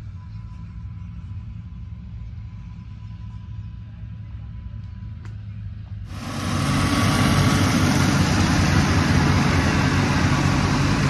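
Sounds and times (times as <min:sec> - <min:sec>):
low engine hum: 0:00.0 - 0:11.0
combine harvester running: 0:05.9 - 0:11.0.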